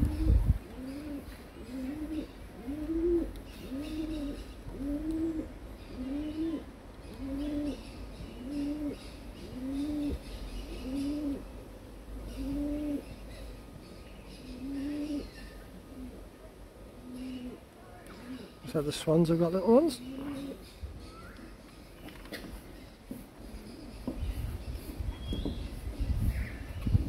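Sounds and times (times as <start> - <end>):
pigeon cooing: 0.0 - 11.5, 12.2 - 13.1, 14.4 - 16.4, 17.0 - 18.6, 19.9 - 20.7.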